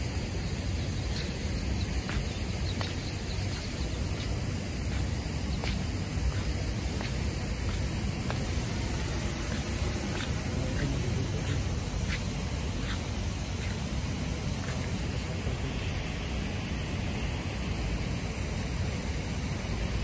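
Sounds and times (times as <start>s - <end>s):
sprinklers hissing: 0.0s - 20.0s.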